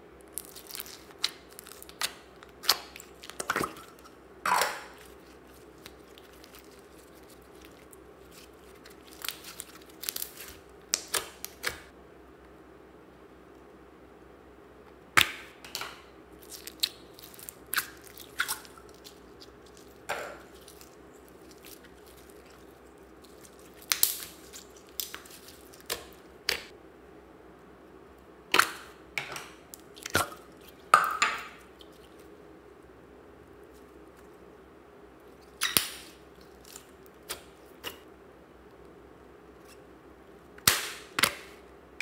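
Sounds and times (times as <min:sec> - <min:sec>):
slime sticky clicks and pops: 0:23.8 - 0:26.7.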